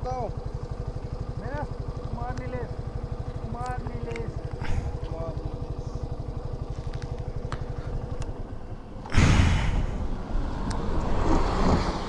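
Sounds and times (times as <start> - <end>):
motorcycle engine pulsing: 0.0 - 10.5
loud rush of noise: 9.1 - 12.0.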